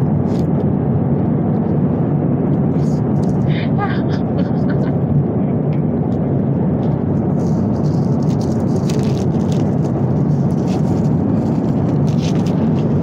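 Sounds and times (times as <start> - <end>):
airliner cabin rumble: 0.0 - 13.0
paper wrapper crinkling: 7.3 - 13.0.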